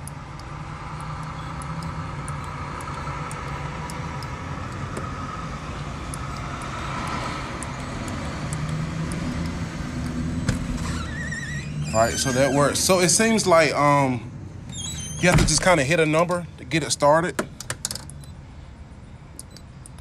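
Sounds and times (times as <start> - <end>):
road traffic: 0.0 - 20.0
car engine rumble: 0.1 - 16.0.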